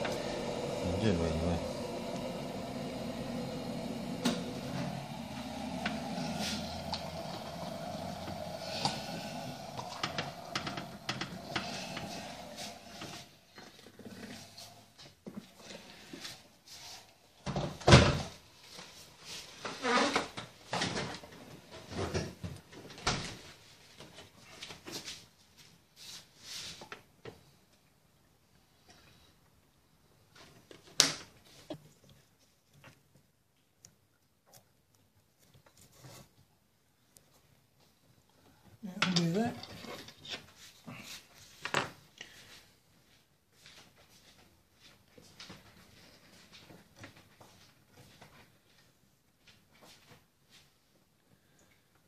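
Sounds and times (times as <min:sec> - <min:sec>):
kettle heating with rumbling hiss: 0:00.0 - 0:25.1, 0:35.8 - 0:44.2.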